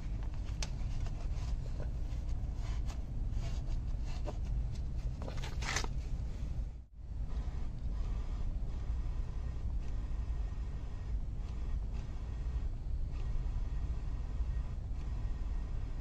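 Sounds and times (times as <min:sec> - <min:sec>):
rustling and scraping: 0:00.0 - 0:06.6
steady low rumble: 0:00.0 - 0:16.0.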